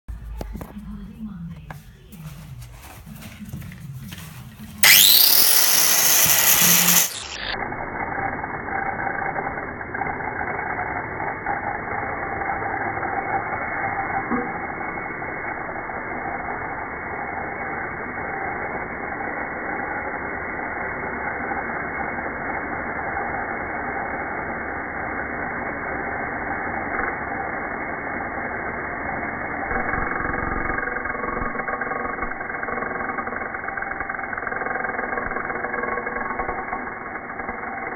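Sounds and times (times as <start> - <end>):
cutting disc biting into pipe: 4.8 - 7.5
angle grinder whine: 4.8 - 37.9.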